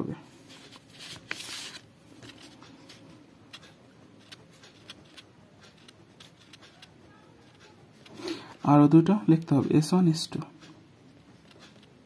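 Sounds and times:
ballpoint pen writing on paper: 2.9s - 8.2s.

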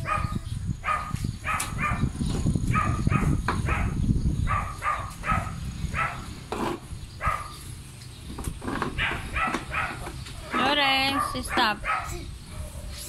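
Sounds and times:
dog yapping: 0.9s - 2.0s, 2.7s - 6.3s, 7.2s - 7.6s, 9.0s - 12.8s.

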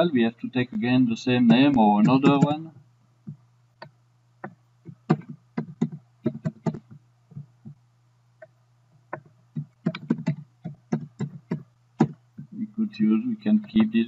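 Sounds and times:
steady low hum: 0.0s - 14.0s
keyboard keys clicking: 9.2s - 12.2s.

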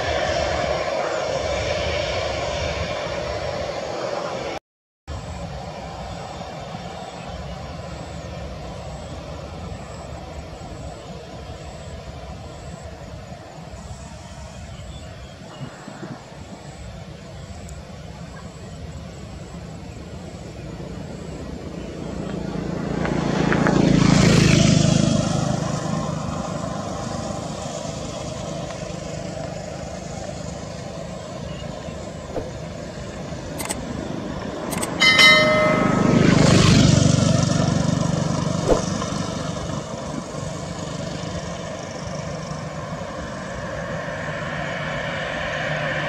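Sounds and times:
jet engines running: 0.0s - 46.0s
short bright chime: 34.7s - 36.7s.

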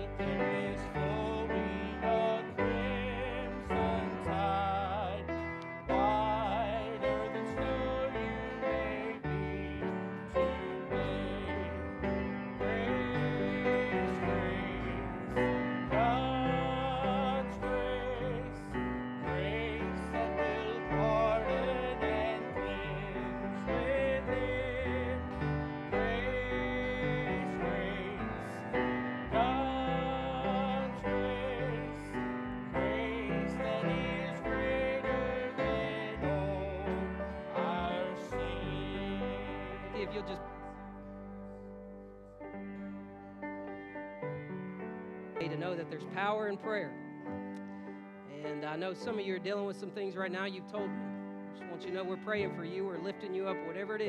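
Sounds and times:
person singing with vibrato: 0.0s - 40.9s
piano accompaniment: 0.0s - 54.0s.

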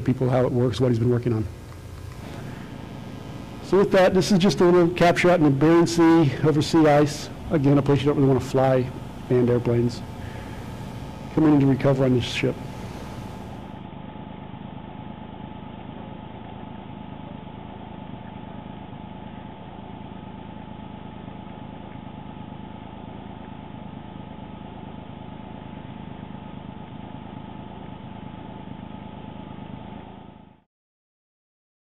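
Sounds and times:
constant tones: 0.0s - 13.8s
engine drone: 1.5s - 13.9s.

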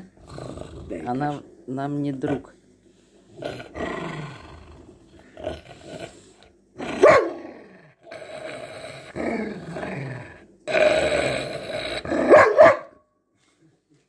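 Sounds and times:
dog growling: 0.0s - 2.6s, 3.3s - 12.6s
dog barking: 7.0s - 7.4s, 12.2s - 13.0s.

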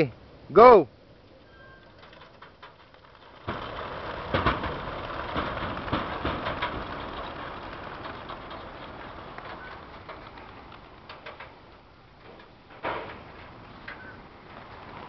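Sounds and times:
pigeon wings clapping and flapping: 1.8s - 11.8s.

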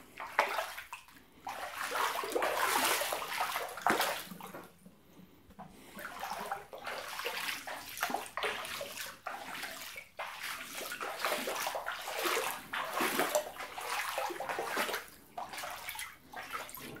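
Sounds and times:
floodwater sloshing and splashing: 0.0s - 4.9s, 5.6s - 17.0s.

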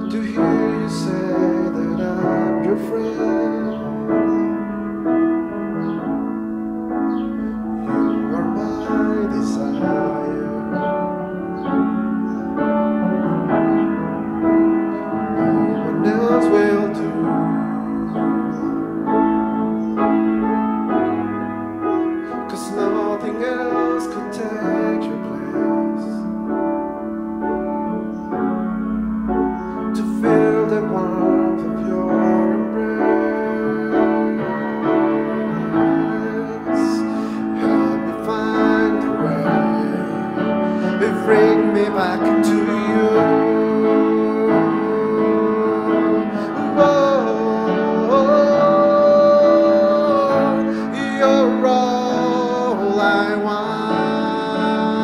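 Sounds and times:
man singing: 0.0s - 4.6s, 7.5s - 11.2s, 15.0s - 19.1s, 22.2s - 26.4s, 29.9s - 55.0s
grand piano chords: 0.0s - 55.0s.

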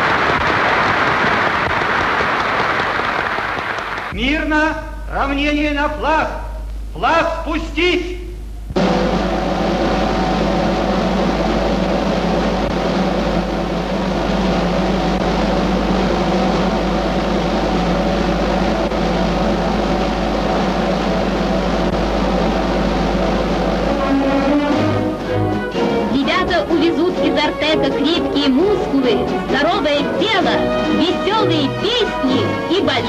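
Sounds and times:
snare drum roll: 0.0s - 4.2s, 8.7s - 32.5s
held musical chord: 8.8s - 33.0s.

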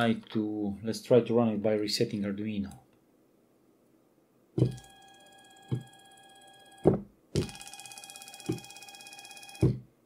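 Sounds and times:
motor start and stop thunk: 9.6s - 9.8s.

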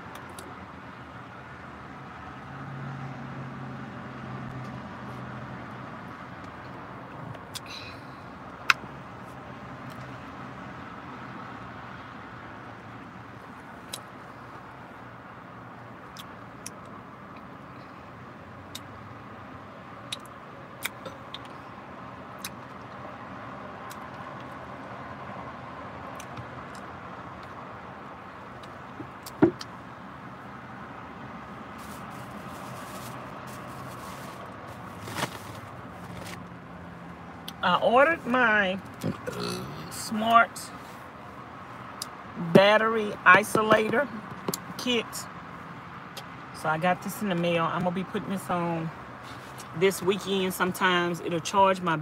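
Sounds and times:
lips and fingers smacking: 20.1s - 21.5s.

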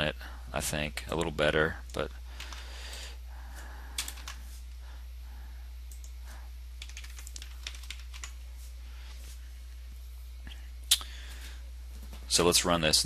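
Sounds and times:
steady low hum: 0.0s - 13.0s
keyboard typing: 4.0s - 4.4s, 6.8s - 8.4s.

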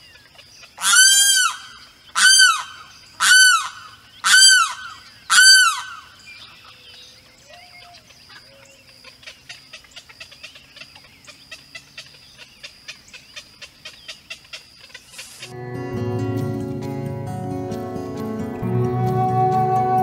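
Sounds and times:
bird calling loudly: 0.6s - 6.9s.

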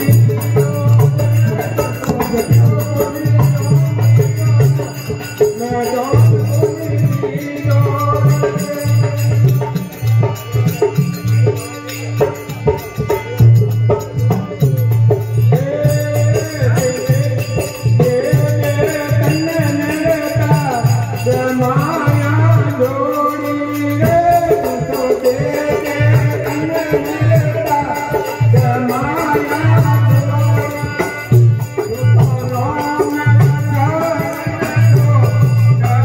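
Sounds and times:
hand percussion: 0.0s - 36.0s
harmonium melody: 0.0s - 36.0s
steady drum beat: 0.0s - 36.0s.

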